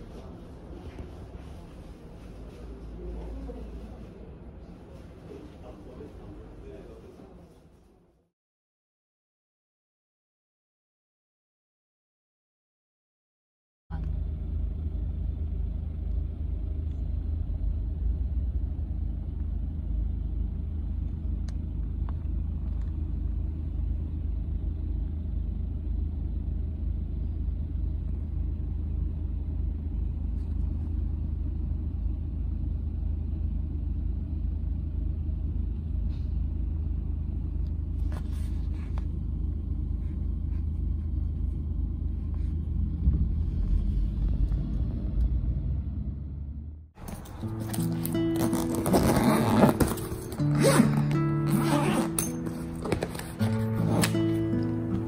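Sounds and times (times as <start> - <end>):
car rumble from inside cabin: 13.9 - 55.0.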